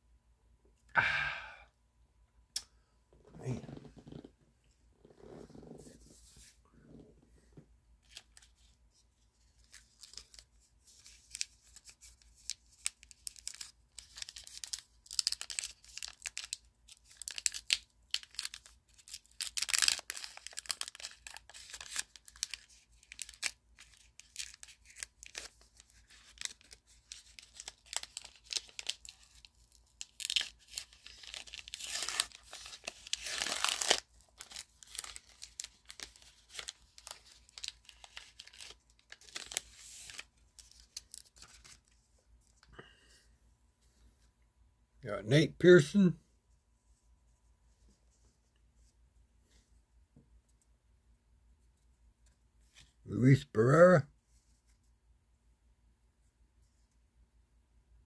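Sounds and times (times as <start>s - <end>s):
wrapper tearing and crinkling: 9.4s - 42.0s.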